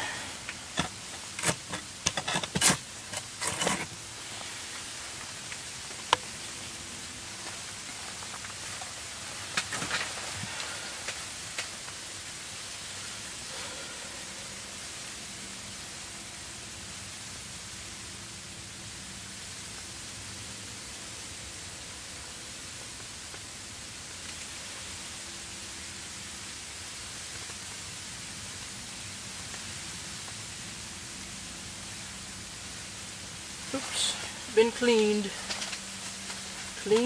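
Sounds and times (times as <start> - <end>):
steady hiss: 0.0 - 37.0
handling rustles and clicks: 0.7 - 4.0.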